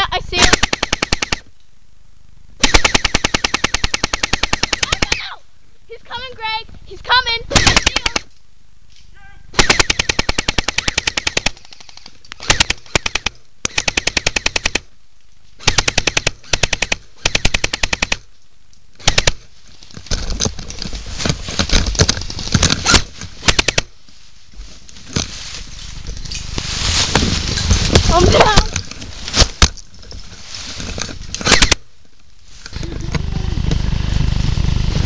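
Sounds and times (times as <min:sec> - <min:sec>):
airsoft gun firing bursts: 0:00.4 - 0:01.5, 0:02.6 - 0:05.2, 0:07.5 - 0:08.3, 0:09.6 - 0:14.9, 0:15.6 - 0:18.2, 0:19.0 - 0:19.4, 0:22.9 - 0:23.9, 0:31.4 - 0:31.8.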